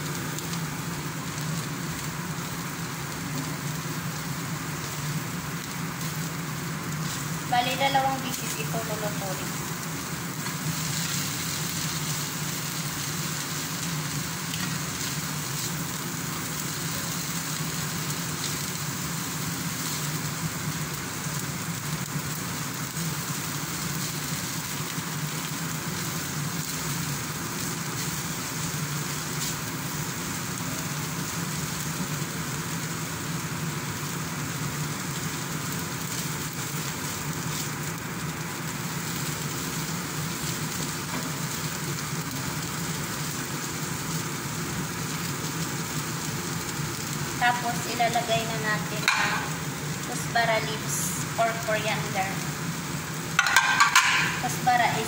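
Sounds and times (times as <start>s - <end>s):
food sizzling in frying pan: 0.0s - 55.0s.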